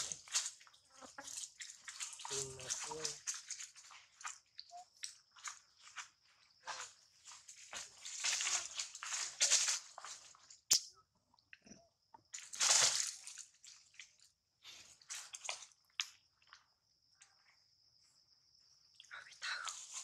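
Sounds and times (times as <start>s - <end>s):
dry leaves crunching underfoot: 0.0s - 4.4s, 6.7s - 10.6s, 12.4s - 13.9s.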